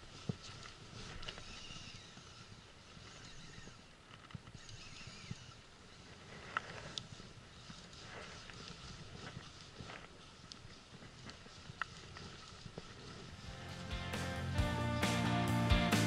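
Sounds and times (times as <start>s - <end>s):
fishing reel cranking: 1.0s - 9.0s.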